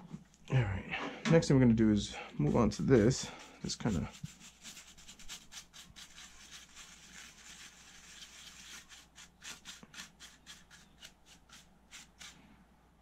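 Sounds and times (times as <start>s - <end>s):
paintbrush bristles brushing circuit board: 2.4s - 12.4s.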